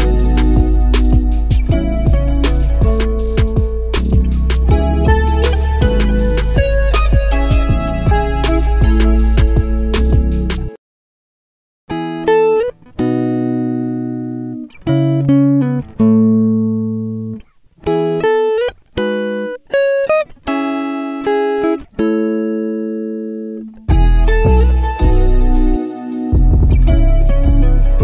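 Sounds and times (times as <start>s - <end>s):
plucked note melody: 0.0s - 10.7s.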